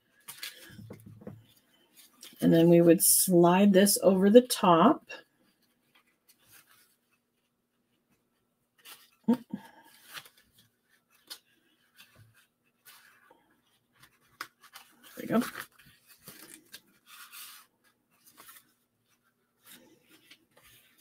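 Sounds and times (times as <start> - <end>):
paper rustling and scraping: 5.3 - 21.0.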